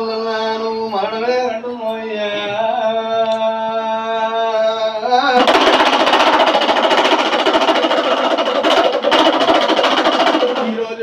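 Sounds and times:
fast rhythmic percussion: 0:05.4 - 0:11.0.

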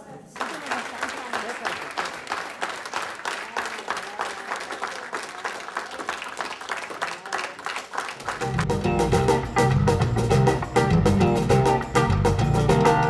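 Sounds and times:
group of people clapping: 0:00.0 - 0:09.5.

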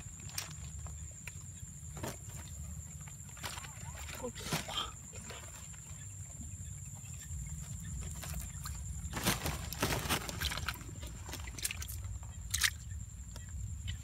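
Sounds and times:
hands splashing in muddy water: 0:08.5 - 0:12.8.

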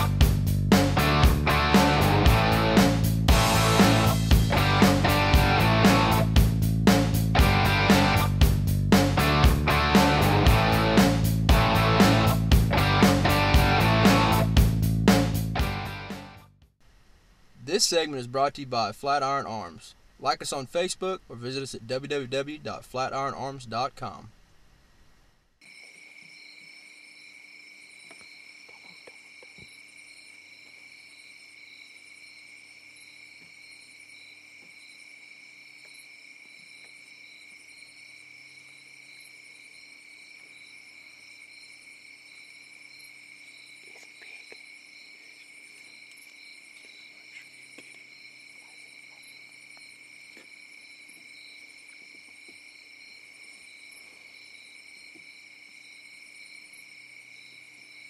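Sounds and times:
crickets and insects trilling: 0:25.6 - 0:58.0.

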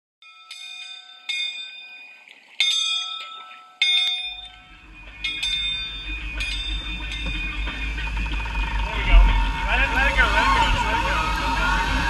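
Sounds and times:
bell-like chimes: 0:00.2 - 0:08.5
low rumble: 0:04.4 - 0:12.0.

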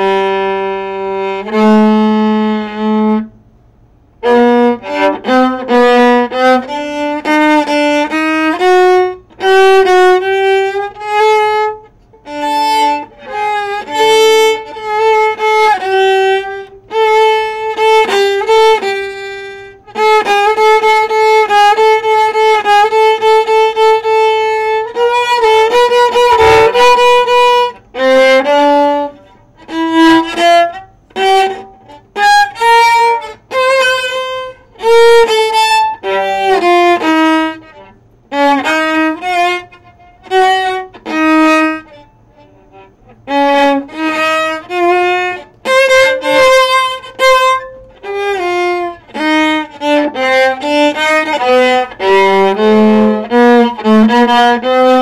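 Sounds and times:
bowed viola melody: 0:00.0 - 0:03.3, 0:04.2 - 0:55.0
scratchy bow accent: 0:26.0 - 0:27.6.

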